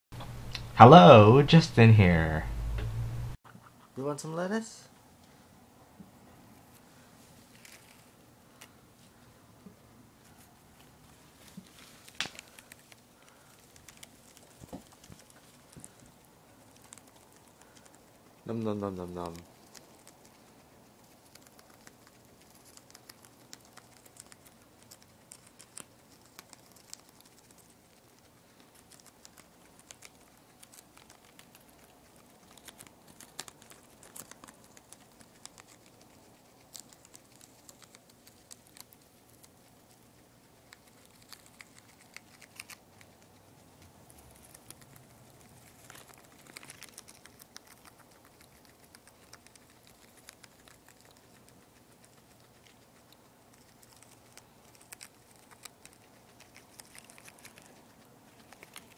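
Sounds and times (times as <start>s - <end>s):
guinea pig crunching lettuce: 6.4s - 58.9s.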